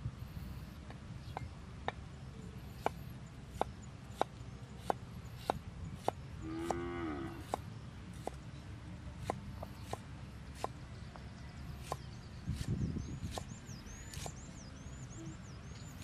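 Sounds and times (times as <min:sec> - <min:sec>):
cleaver chopping on wooden board: 0:02.8 - 0:06.8, 0:07.4 - 0:08.4, 0:09.2 - 0:13.5, 0:14.1 - 0:14.4.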